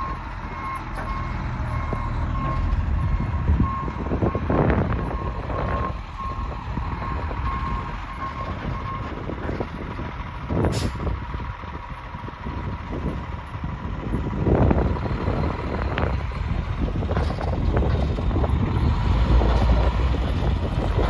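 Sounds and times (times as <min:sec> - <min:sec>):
vehicle backup alarm beeping: 0:00.0 - 0:09.3
wind buffeting microphone: 0:01.2 - 0:21.0.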